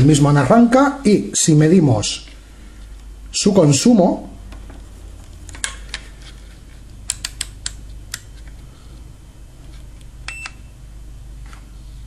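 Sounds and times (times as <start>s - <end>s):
compressor low hum: 0.0s - 12.0s
clamp meter clicks: 7.0s - 8.3s.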